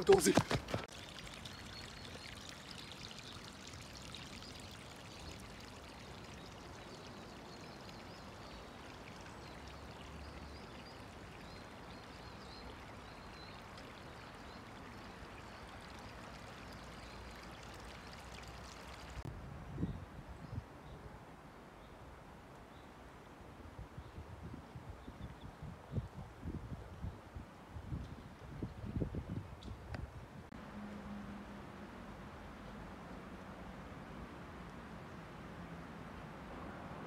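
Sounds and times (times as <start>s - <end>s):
running water rushing: 0.0s - 19.3s.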